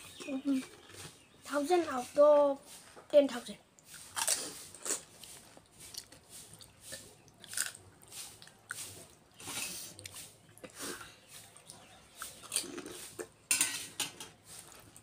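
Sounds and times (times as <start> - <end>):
crisp shells crunched and chewed: 3.8 - 9.2, 11.6 - 13.4.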